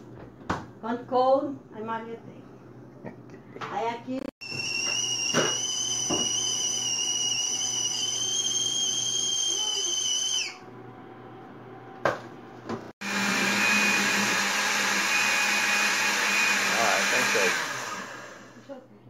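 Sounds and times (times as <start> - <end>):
stovetop kettle whistling: 4.4 - 10.8
blender whirring: 4.4 - 11.9, 13.0 - 18.7.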